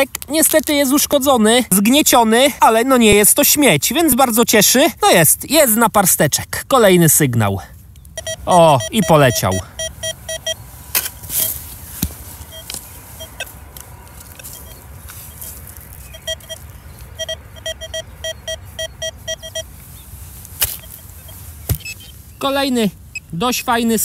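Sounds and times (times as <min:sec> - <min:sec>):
metal detector beeping: 0:08.2 - 0:11.6, 0:12.4 - 0:13.6, 0:14.2 - 0:19.7, 0:20.7 - 0:22.1.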